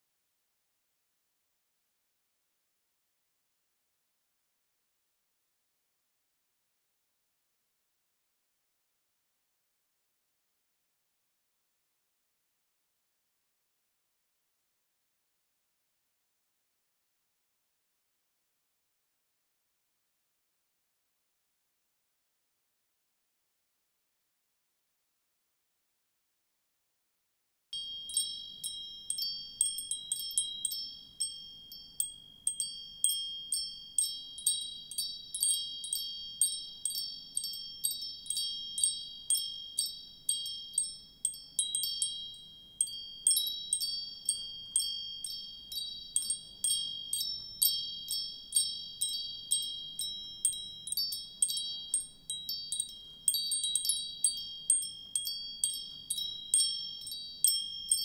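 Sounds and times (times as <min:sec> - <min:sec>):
wind chimes ringing: 0:27.8 - 0:58.0.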